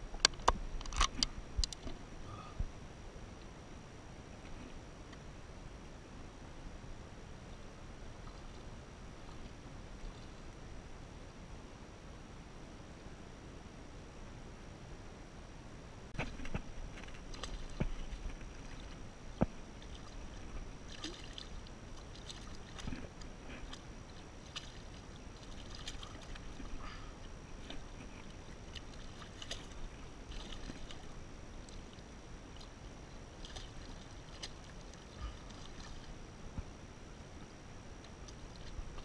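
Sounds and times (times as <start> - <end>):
water splashing and lapping: 16.2 - 36.6, 37.8 - 39.0.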